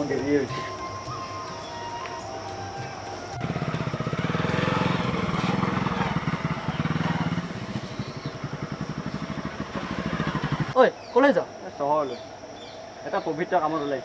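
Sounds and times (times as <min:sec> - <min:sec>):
motorcycle engine running: 0:02.8 - 0:10.8.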